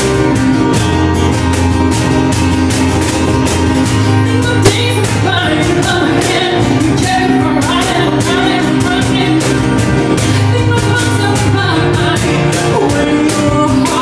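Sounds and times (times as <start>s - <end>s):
acoustic guitar: 0.0s - 14.0s
digital piano: 0.0s - 14.0s
woman singing: 4.1s - 14.0s.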